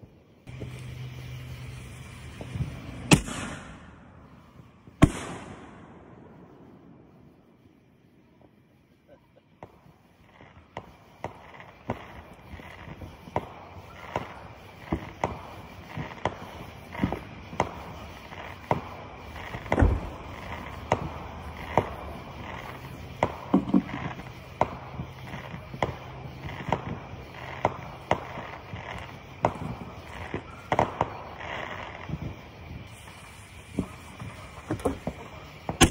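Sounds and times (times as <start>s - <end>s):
fireworks popping and cracking: 0.0s - 35.9s
deep firework boom: 1.6s - 7.2s, 11.3s - 32.9s.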